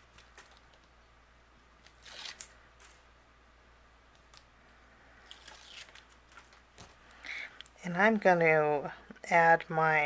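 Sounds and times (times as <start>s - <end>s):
release paper peeling: 1.8s - 3.0s, 5.2s - 6.6s.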